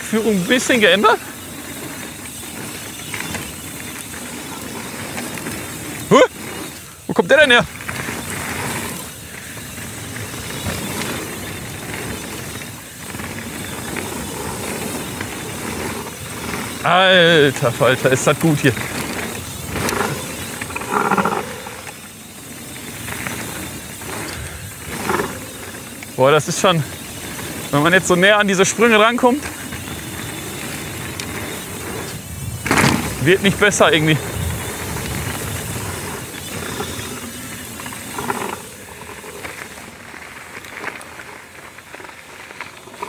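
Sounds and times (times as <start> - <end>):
bike tyres rolling: 0.0 - 43.0
wind rushing over microphone: 29.7 - 38.6.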